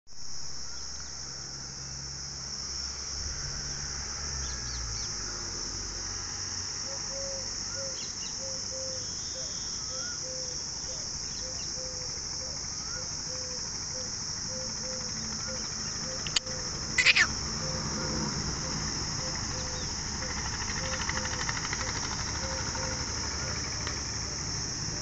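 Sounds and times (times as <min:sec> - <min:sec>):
high-pitched insect chorus: 0:00.1 - 0:25.0
bird chirps and calls: 0:14.5 - 0:18.0.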